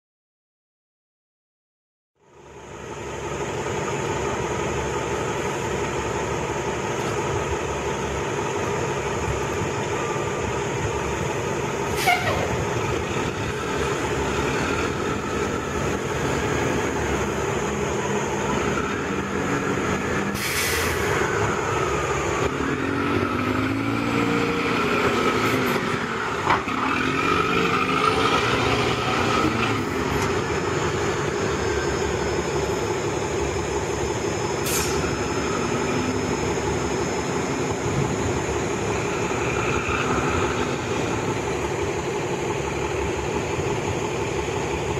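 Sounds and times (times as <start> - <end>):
bus engine running: 2.2 - 44.9
air brake hiss: 11.9 - 12.6, 20.3 - 21.3, 34.6 - 35.2.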